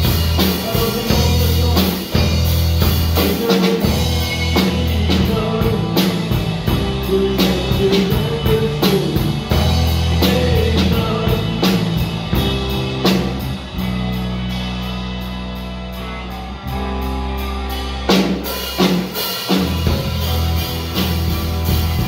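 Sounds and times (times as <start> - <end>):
electric bass: 0.0 - 22.0
electric guitar: 0.0 - 22.0
drum beat: 18.1 - 22.0.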